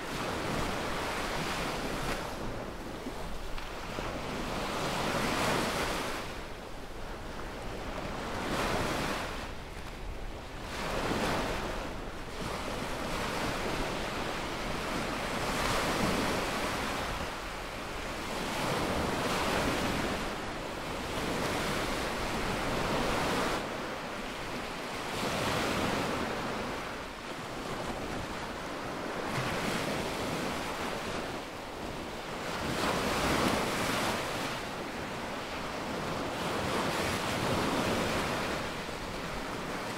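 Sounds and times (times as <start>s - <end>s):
small waves breaking on sand: 0.0s - 39.9s.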